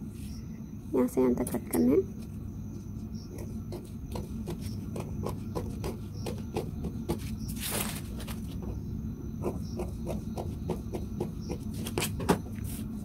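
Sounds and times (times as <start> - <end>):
low steady hum: 0.0 - 13.0
paper rustling: 7.2 - 8.6.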